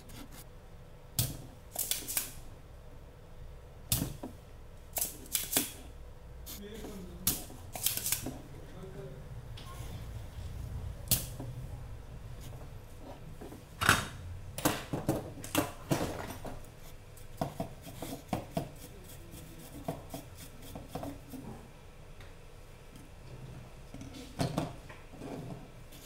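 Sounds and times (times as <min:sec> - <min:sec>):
desoldering pump snapping: 0:01.2 - 0:02.4, 0:04.9 - 0:05.8, 0:07.2 - 0:08.4.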